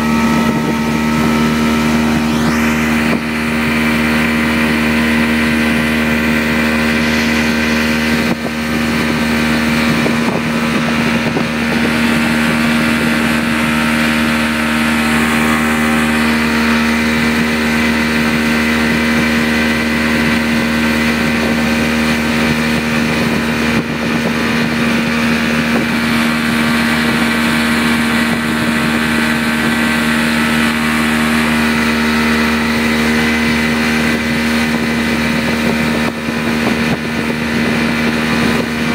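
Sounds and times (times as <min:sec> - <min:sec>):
speedboat engine running: 0:00.0 - 0:38.9.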